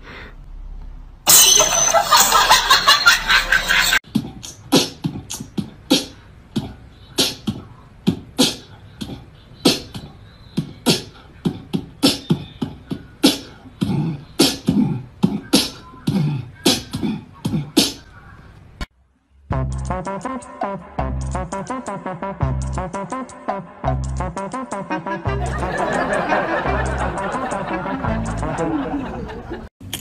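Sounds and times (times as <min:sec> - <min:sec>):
beatboxing: 0:04.0 - 0:18.1, 0:19.5 - 0:29.3.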